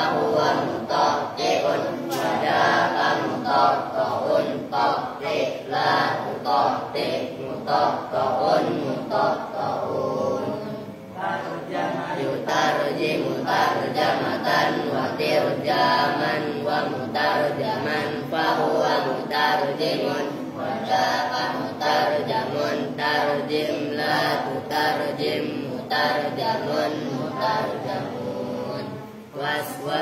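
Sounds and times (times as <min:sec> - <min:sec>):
boys chanting in unison: 0:00.0 - 0:30.0.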